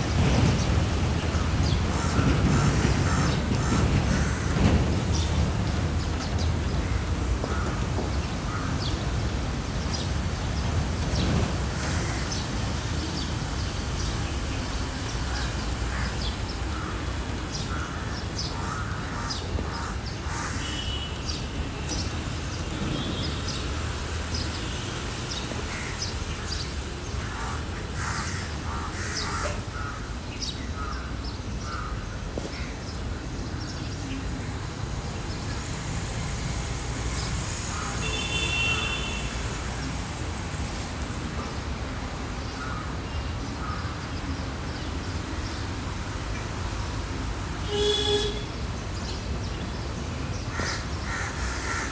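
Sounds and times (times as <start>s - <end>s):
crows cawing: 17.7s - 20.7s, 27.2s - 30.1s, 50.5s - 51.9s.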